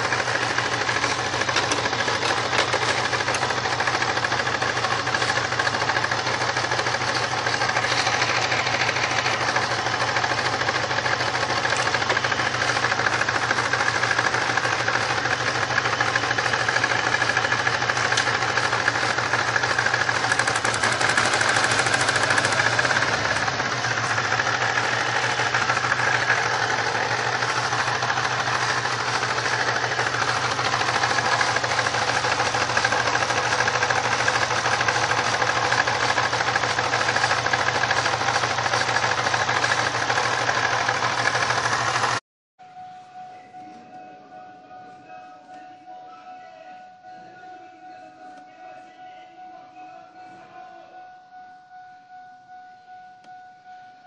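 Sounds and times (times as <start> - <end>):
car engine idling with misfire: 0.0 - 42.2.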